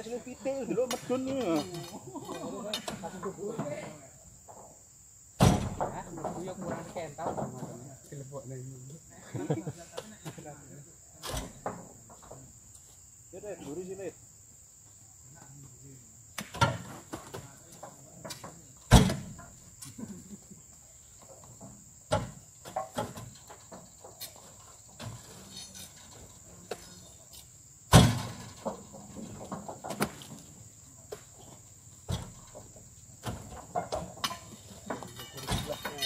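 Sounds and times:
high insect drone: 0:00.0 - 0:36.0
fruit bunches knocking and thudding: 0:05.4 - 0:08.0, 0:16.4 - 0:19.6, 0:21.2 - 0:27.0, 0:27.9 - 0:36.0.

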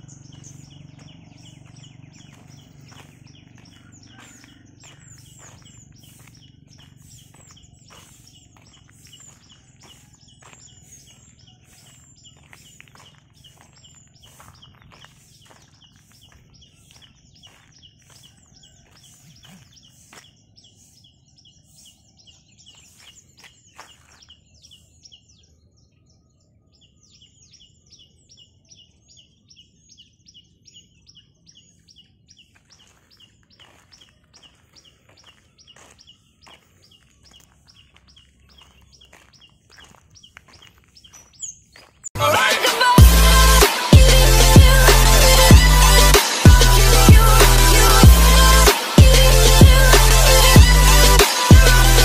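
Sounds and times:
birds chirping: 0:00.0 - 0:52.0.

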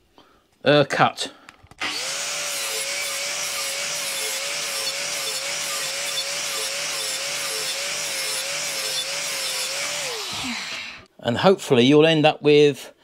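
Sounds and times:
angle grinder motor whine: 0:01.8 - 0:11.1
disc grinding metal: 0:01.8 - 0:11.1.

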